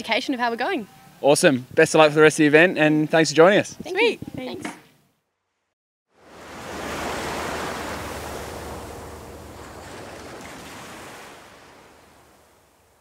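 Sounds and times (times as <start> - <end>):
ocean wave rushing in: 6.2 - 13.0.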